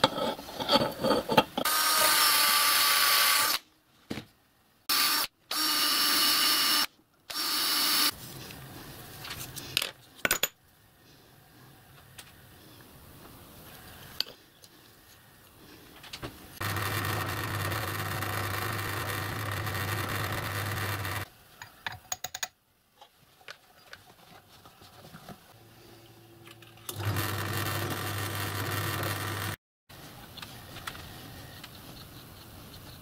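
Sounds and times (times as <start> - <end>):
pillar drill motor hum: 16.6 - 21.3.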